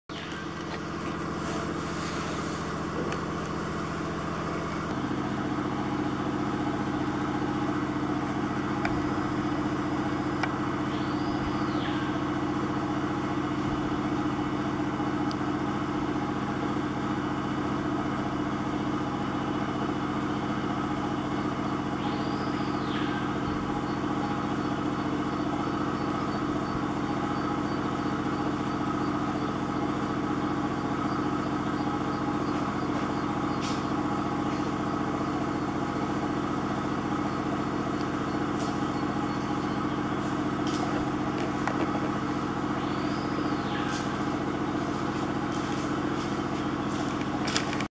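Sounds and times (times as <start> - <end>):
motor humming: 0.0 - 47.9
high rising and falling call: 41.2 - 44.6.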